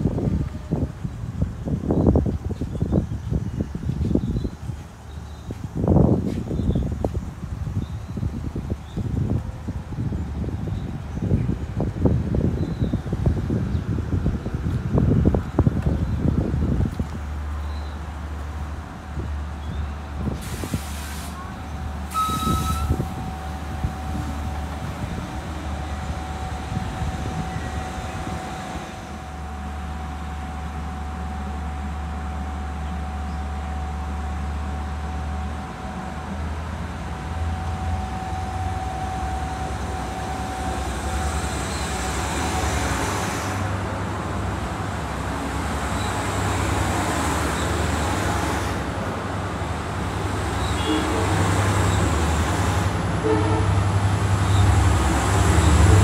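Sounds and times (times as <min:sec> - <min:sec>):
train engine humming: 0:00.0 - 0:56.0.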